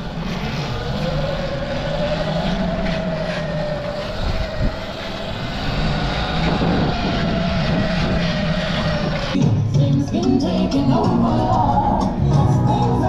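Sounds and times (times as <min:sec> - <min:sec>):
electric motor whine: 0:00.0 - 0:09.4
wind and tyre rushing noise: 0:00.0 - 0:09.7.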